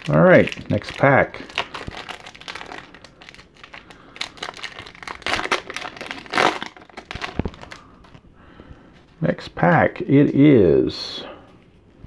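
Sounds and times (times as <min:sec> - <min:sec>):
foil wrapper crinkling and tearing: 0:00.0 - 0:08.2.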